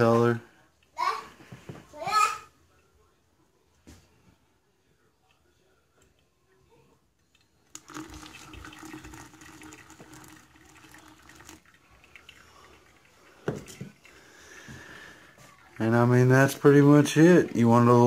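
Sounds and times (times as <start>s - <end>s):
coffee trickling: 7.3s - 18.0s
hot water pouring: 7.7s - 18.0s.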